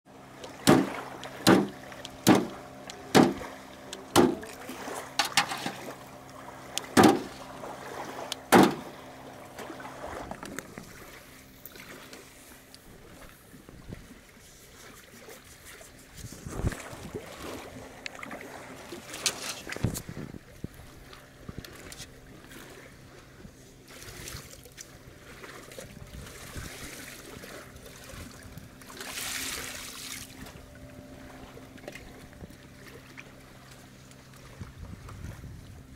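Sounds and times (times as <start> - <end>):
low steady hum: 0.1 - 35.9
knife chopping carcass on wood: 0.7 - 0.9, 1.5 - 1.7.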